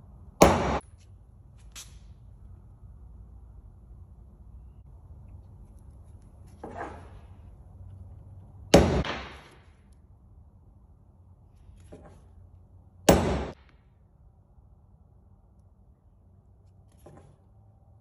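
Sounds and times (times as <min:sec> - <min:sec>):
hammer striking steel punch: 0:00.4 - 0:00.8, 0:08.7 - 0:09.6, 0:13.1 - 0:13.6.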